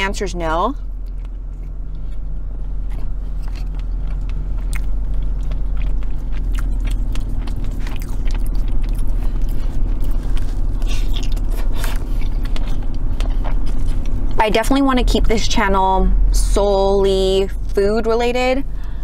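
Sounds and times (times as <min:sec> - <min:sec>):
person chewing: 0:00.8 - 0:14.4.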